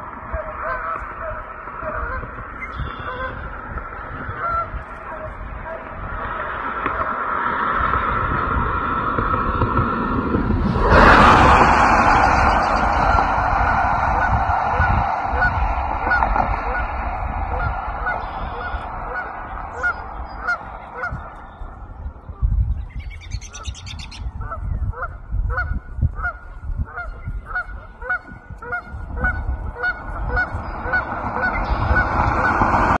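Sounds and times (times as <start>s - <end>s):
geese honking: 0.0s - 6.2s, 10.9s - 21.9s, 23.2s - 33.0s
low rumble: 0.0s - 33.0s.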